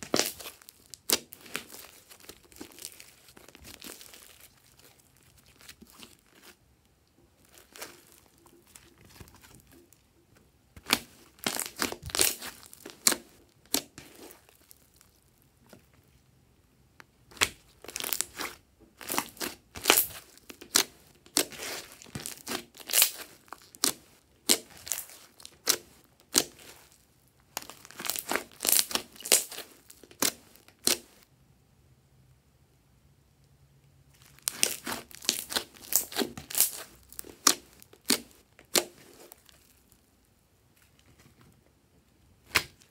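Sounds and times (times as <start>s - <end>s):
slime crackling and popping: 0.0s - 6.6s, 7.4s - 9.9s, 10.8s - 15.4s, 17.3s - 31.2s, 34.2s - 40.0s.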